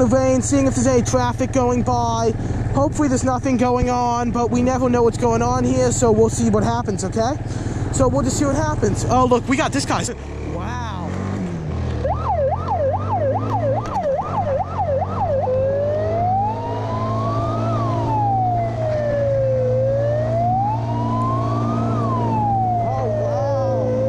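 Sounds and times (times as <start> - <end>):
engine humming: 0.0 - 24.0
siren yelping and wailing: 12.0 - 24.0.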